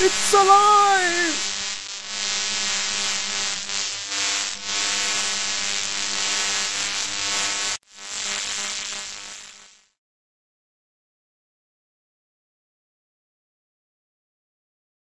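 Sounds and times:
electrical humming buzz: 0.0 - 9.9
crackling static hiss: 0.0 - 10.0.

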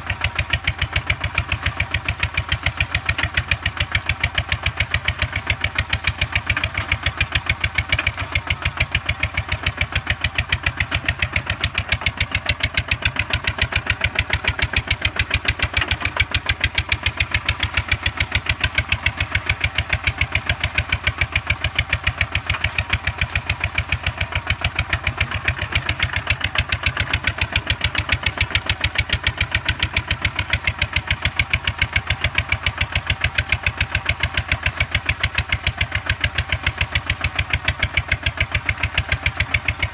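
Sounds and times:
walking tractor engine running: 0.0 - 39.9.

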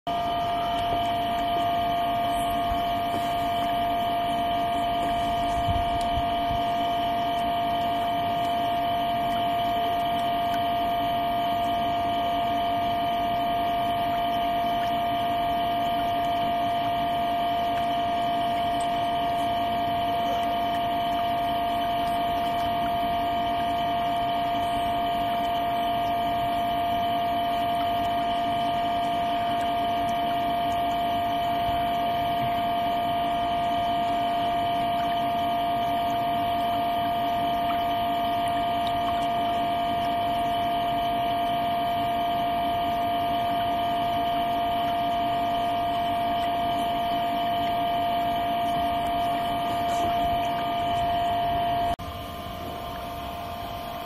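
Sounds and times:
jet pump humming: 0.1 - 54.0
water churning: 0.1 - 54.0.

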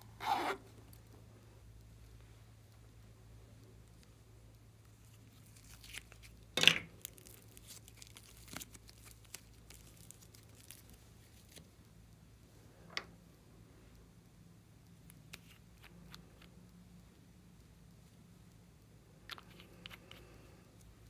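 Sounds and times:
slime crackling: 4.9 - 11.7
sticky slime tearing: 5.0 - 6.4, 7.0 - 11.6.

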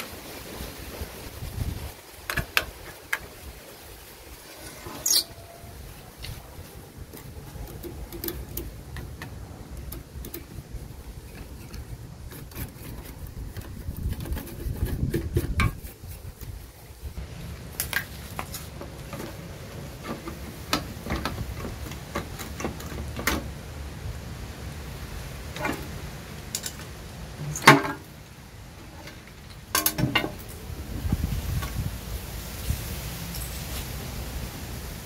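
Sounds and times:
stiff brush scrubbing metal: 4.3 - 17.3, 18.1 - 23.3.

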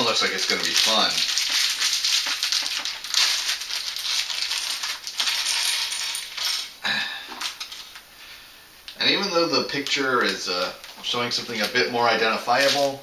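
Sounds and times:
plastic bag crinkling: 0.0 - 8.0, 12.4 - 13.0
toy bricks clattering on wood: 4.6 - 6.7.

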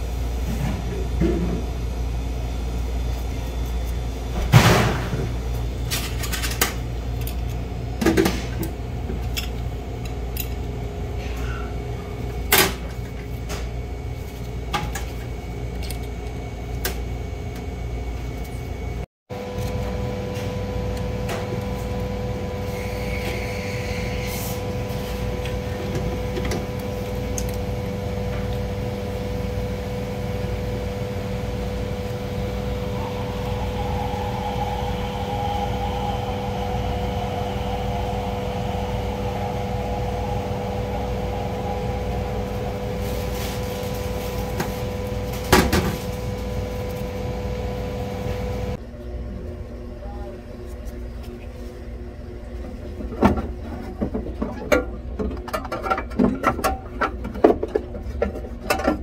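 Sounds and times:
machine hum: 0.0 - 54.2
steady whine: 16.8 - 49.0.

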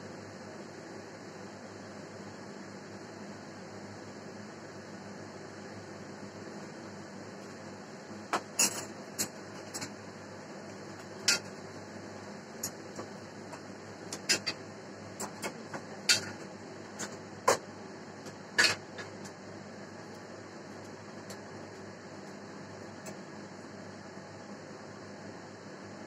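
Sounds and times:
steady hiss and hum: 0.0 - 26.0.

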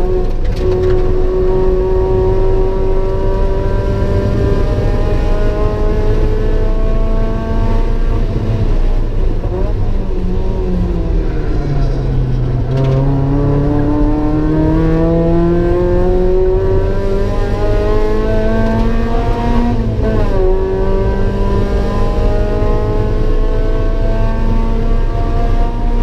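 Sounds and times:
car engine accelerating: 0.0 - 26.0.

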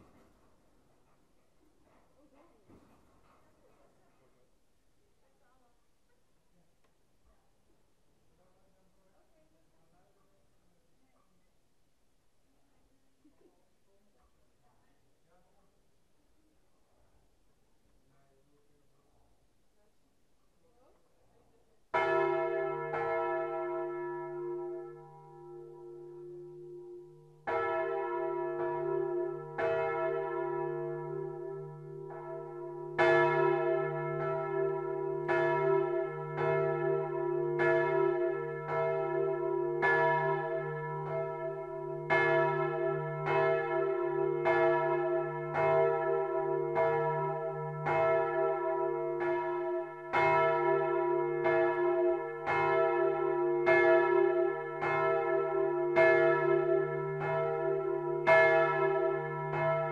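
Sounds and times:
church bells pealing: 21.9 - 59.9.

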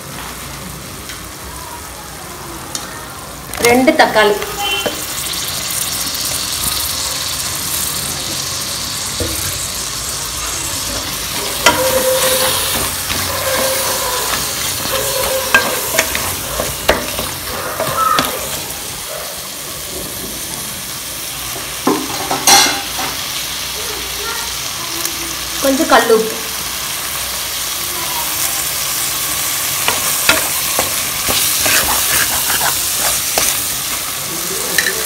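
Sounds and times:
food sizzling in oil: 0.0 - 35.0
spatula scraping a pan: 10.8 - 18.7, 29.7 - 34.1.

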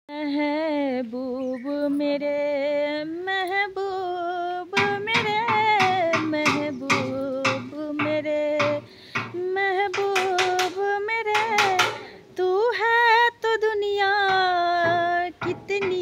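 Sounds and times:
wavering held vocal: 4.7 - 16.0
drum beats: 4.8 - 12.2, 14.1 - 16.0.

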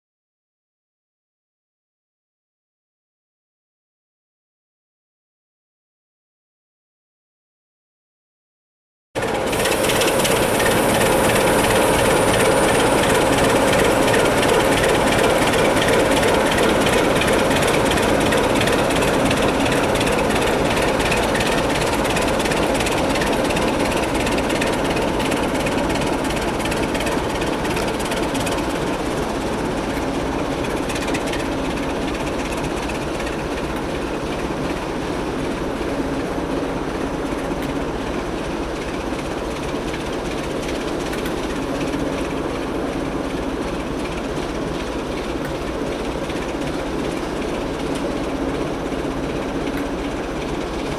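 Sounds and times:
wheel clatter on rails: 9.2 - 36.2
diesel train running: 9.2 - 50.9.

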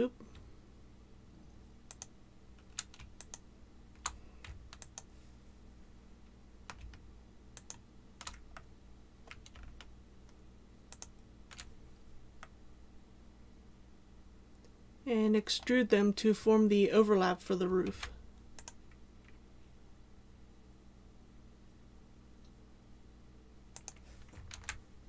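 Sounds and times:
faint steady hum: 0.0 - 25.0
keyboard and mouse clicking: 1.9 - 3.4, 4.0 - 5.1, 6.7 - 11.7, 17.8 - 19.4, 23.7 - 24.8.

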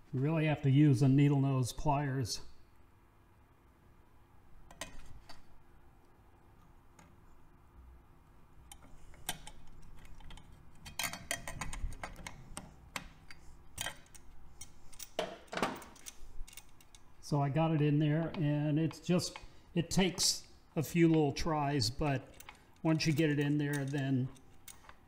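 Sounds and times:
pliers clicking on metal: 8.6 - 15.2, 22.2 - 25.0.

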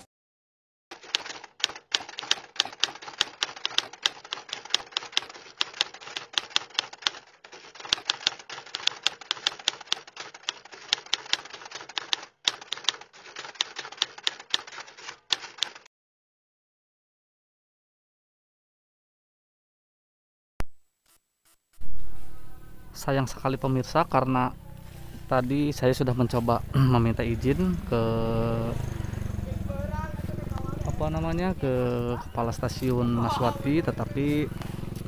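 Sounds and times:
typewriter keys clacking: 0.9 - 15.9.

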